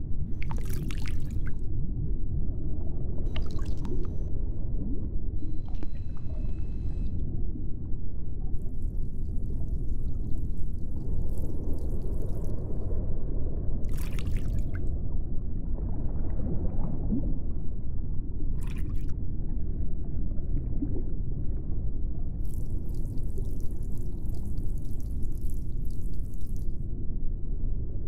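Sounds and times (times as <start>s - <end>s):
water-like low rumble: 0.0s - 28.0s.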